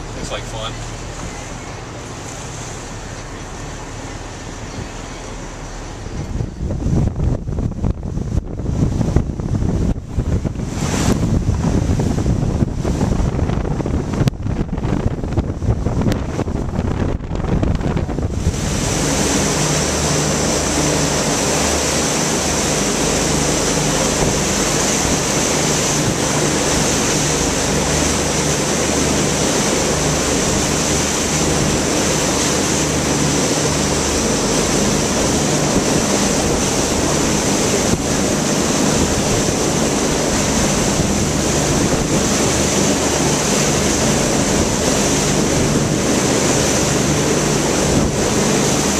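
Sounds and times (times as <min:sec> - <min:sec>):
motorboat engine drone: 0:00.0 - 0:48.9
water rushing past boat hull: 0:00.0 - 0:48.9
wind buffeting microphone: 0:00.0 - 0:48.9.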